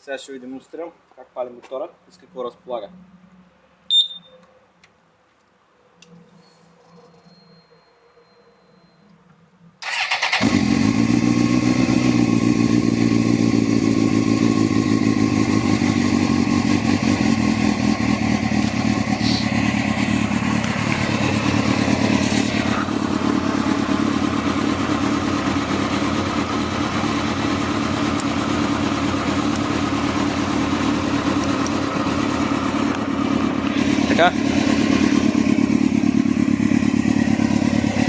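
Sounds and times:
motorcycle engine starting and idling: 0:09.8 - 0:38.0.

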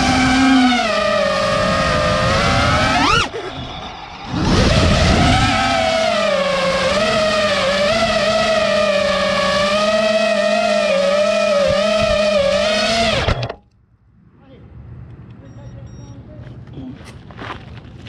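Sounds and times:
drone motors whining: 0:00.0 - 0:13.6.

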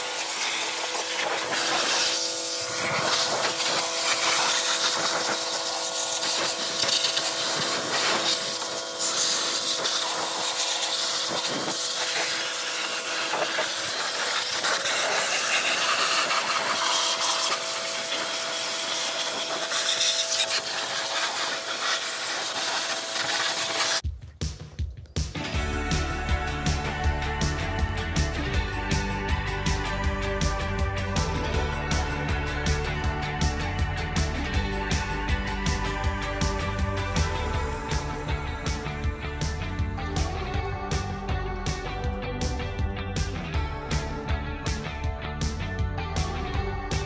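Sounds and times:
pressure washer spraying metal: 0:00.0 - 0:24.0
steady hum: 0:00.0 - 0:24.0.

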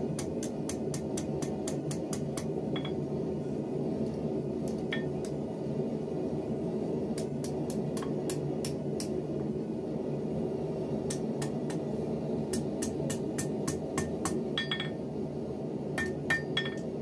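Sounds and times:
low background rumble: 0:00.0 - 0:17.0
hammer striking steel on anvil: 0:00.2 - 0:03.1, 0:04.7 - 0:05.3, 0:12.5 - 0:15.0, 0:16.0 - 0:16.9.

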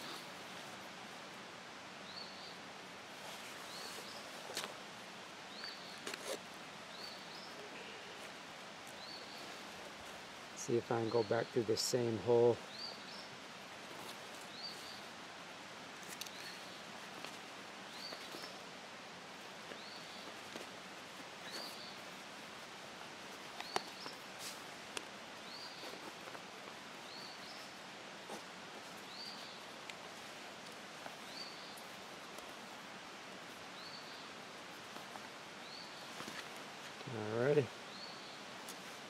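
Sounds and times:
steady outdoor hiss: 0:00.0 - 0:39.0
leather and thread rustling: 0:03.1 - 0:05.0, 0:05.6 - 0:10.4, 0:13.7 - 0:15.1, 0:15.9 - 0:18.7, 0:19.3 - 0:37.3.

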